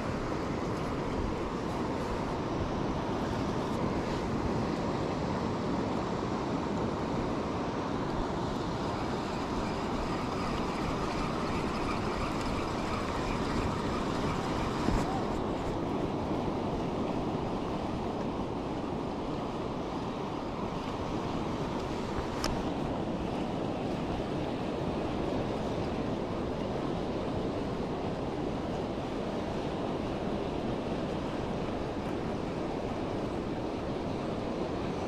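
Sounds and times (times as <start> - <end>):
wind buffeting microphone: 8.2 - 35.0.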